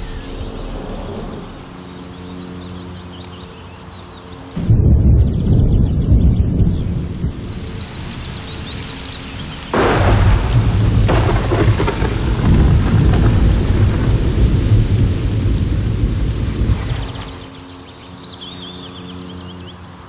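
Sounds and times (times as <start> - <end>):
loud thunderclap: 4.6 - 8.8, 9.7 - 17.5
low rumbling thunder: 4.6 - 17.6
heavy rain falling: 5.5 - 17.6.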